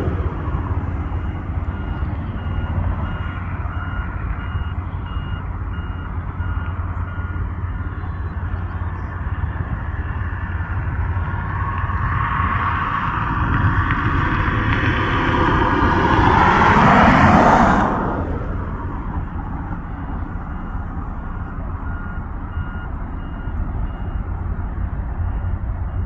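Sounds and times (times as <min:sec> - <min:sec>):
faint beeping: 0:00.0 - 0:11.6, 0:18.8 - 0:26.0
low rumble: 0:00.0 - 0:26.0.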